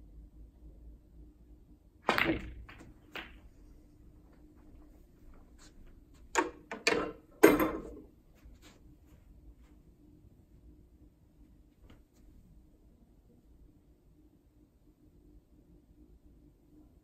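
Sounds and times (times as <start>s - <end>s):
cue striking ball: 2.1s - 3.4s, 6.4s - 8.1s
snooker balls knocking: 2.1s - 3.8s, 6.3s - 8.1s.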